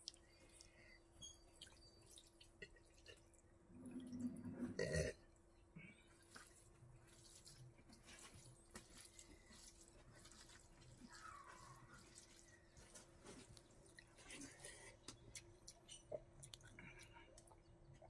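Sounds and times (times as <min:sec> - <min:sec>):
faint steady hum: 0:00.0 - 0:18.0
wet squishing of rice by hand: 0:01.5 - 0:03.2, 0:06.1 - 0:17.9.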